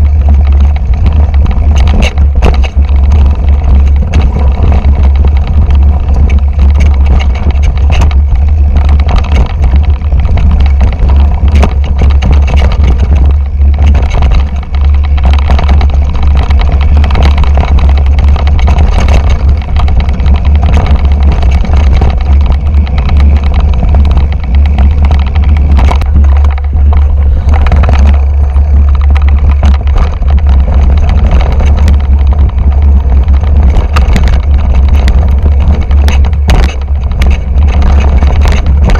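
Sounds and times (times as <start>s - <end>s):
mountain bike rattling and knocking: 0.0s - 38.9s
wind buffeting microphone: 0.0s - 38.9s.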